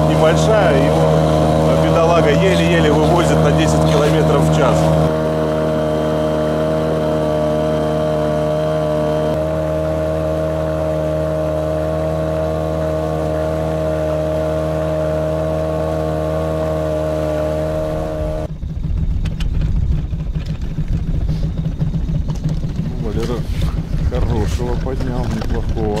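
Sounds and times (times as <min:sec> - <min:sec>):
outboard motor running: 0:00.0 - 0:26.0
wind rumble on microphone: 0:17.8 - 0:26.0.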